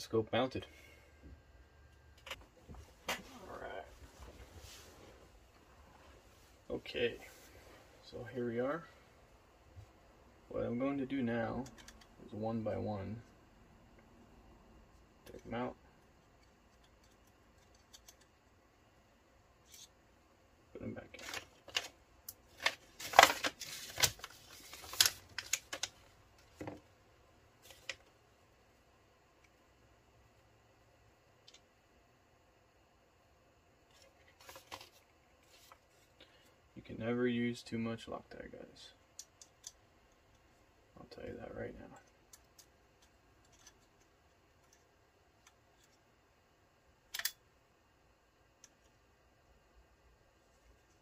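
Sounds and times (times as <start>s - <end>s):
paper crackling and rustling: 21.1s - 26.6s, 34.0s - 36.0s.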